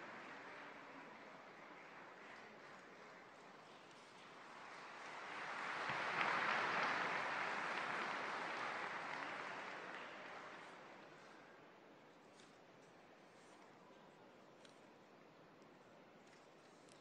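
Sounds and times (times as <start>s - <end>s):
large audience applauding: 0.0s - 11.2s.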